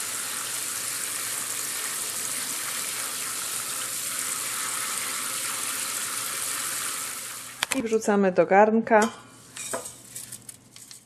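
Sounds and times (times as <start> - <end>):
tap water running over grain: 0.0 - 7.7.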